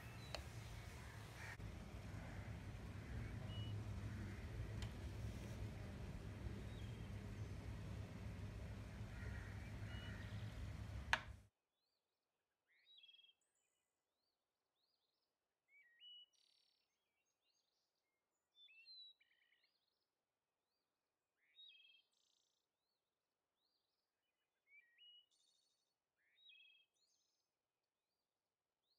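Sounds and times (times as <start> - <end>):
birdsong chirps: 0.0 - 11.4
low background noise: 0.0 - 11.4
sharp click: 8.1 - 11.4.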